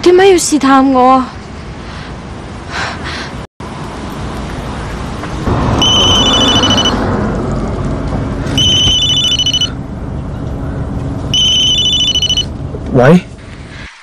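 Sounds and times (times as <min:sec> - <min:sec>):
mobile phone ringtone trilling: 0:05.8 - 0:07.0, 0:08.6 - 0:09.8, 0:11.3 - 0:12.5.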